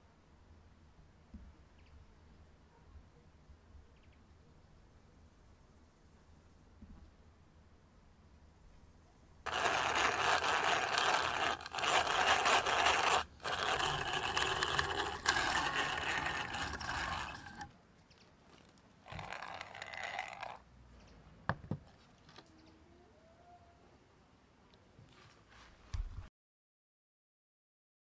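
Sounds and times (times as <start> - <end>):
hand drill boring into wood: 9.5 - 17.7, 19.1 - 20.6.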